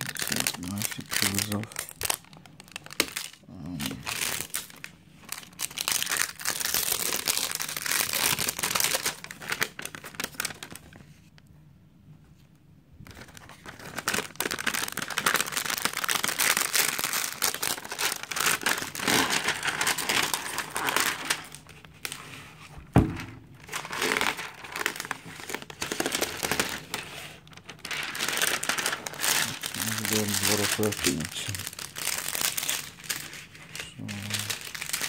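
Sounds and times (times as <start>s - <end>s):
plastic film crinkling: 0.0s - 11.3s, 13.0s - 35.0s.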